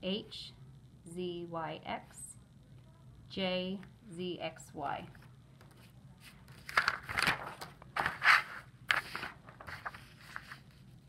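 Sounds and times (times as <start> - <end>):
paper rustling and sliding: 5.8 - 11.0.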